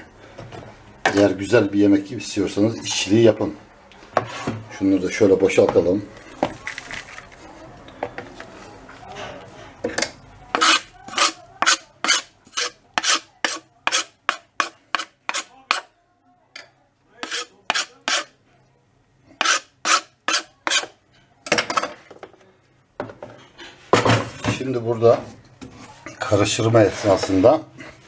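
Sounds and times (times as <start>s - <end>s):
knife scraping wooden cutting board: 10.6s - 15.9s, 17.2s - 18.3s, 19.4s - 20.9s.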